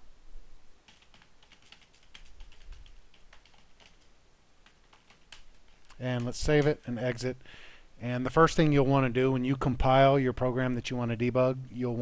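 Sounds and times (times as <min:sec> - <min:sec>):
keyboard typing clicks: 0:00.9 - 0:06.7.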